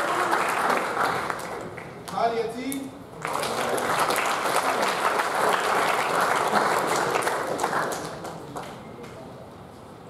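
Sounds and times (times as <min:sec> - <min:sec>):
audience applauding: 0:00.0 - 0:02.0, 0:03.2 - 0:08.8.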